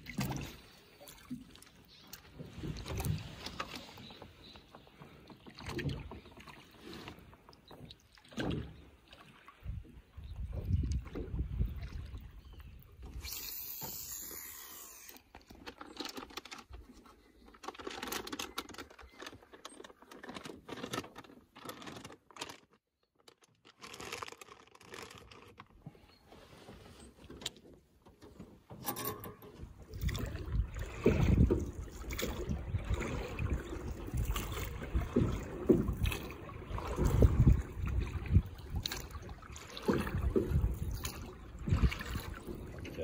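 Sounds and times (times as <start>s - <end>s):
taps knocks and scrapes on boat: 34.1s - 43.0s.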